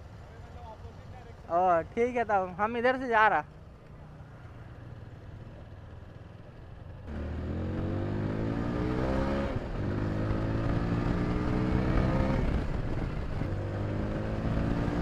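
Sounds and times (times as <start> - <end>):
motorcycle engine accelerating: 4.6 - 15.0.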